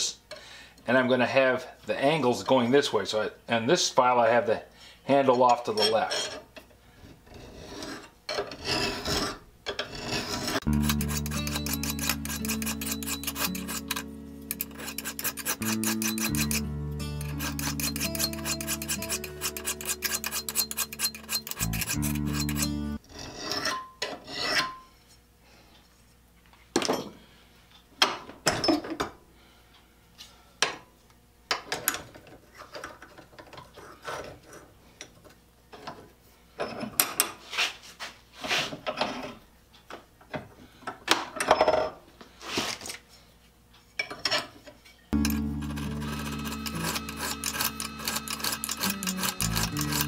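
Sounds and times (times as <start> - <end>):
file scraping steel blade: 5.7 - 6.4, 7.2 - 24.8, 45.2 - 50.0
music: 10.6 - 23.0, 45.2 - 50.0.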